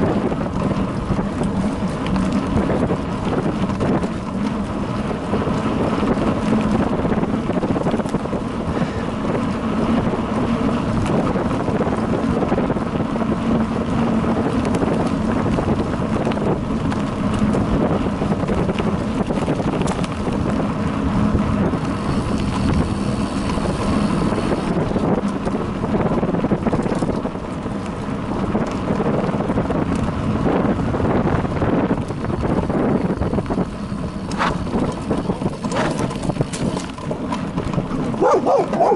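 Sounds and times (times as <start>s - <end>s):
bike clattering over bumps: 0.0s - 38.9s
tyres rolling on dirt: 0.0s - 38.9s
wind buffeting microphone: 0.0s - 38.9s.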